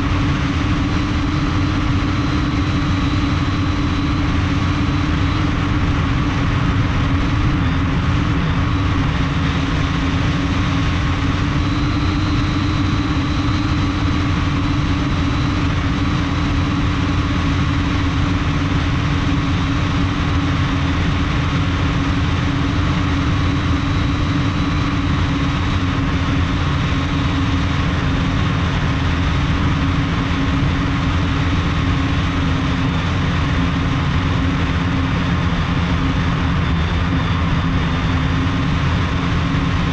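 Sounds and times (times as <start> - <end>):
drone motors and propellers humming: 0.0 - 39.9.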